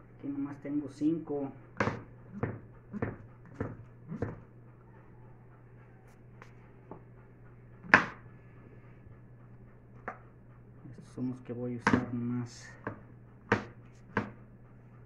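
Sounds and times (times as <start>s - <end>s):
knife knocking on cutting board: 1.8s - 4.4s, 11.8s - 12.1s, 12.9s - 14.4s.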